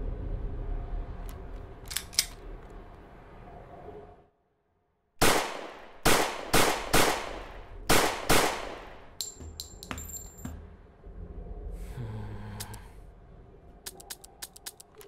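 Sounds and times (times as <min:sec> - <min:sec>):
revolver gunshots echoing: 0:05.2 - 0:09.2
metallic clinks ringing: 0:09.2 - 0:10.6.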